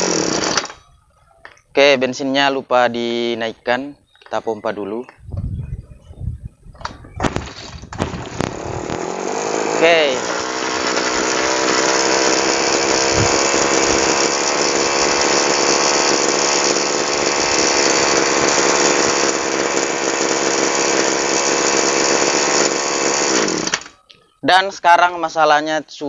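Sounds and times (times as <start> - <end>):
two-stroke engine running: 0.0 - 0.8, 8.0 - 23.9.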